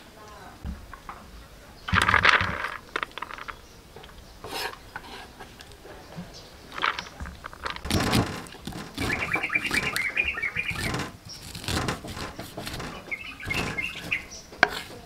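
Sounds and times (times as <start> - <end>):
bird chirping: 0.3 - 15.0
cleaver slicing corn on board: 4.4 - 5.5, 7.8 - 15.0
cleaver scraping metal tray: 4.4 - 6.0, 6.8 - 15.0.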